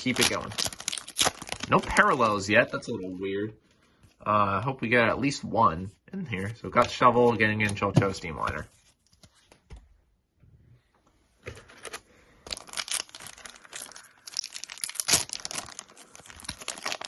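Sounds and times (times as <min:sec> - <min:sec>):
foil pack crinkling and tearing: 0:00.0 - 0:02.9, 0:11.8 - 0:17.0.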